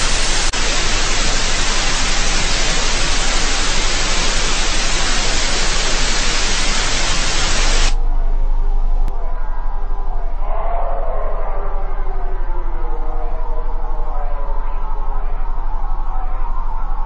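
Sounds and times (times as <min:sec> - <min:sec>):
loud static hiss: 0:00.0 - 0:08.0
low rumble: 0:00.0 - 0:17.0.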